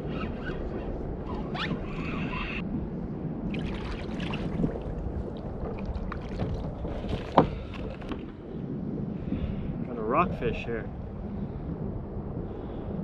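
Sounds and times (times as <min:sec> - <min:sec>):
wind buffeting microphone: 0:00.0 - 0:13.0
water splashes: 0:03.5 - 0:08.2.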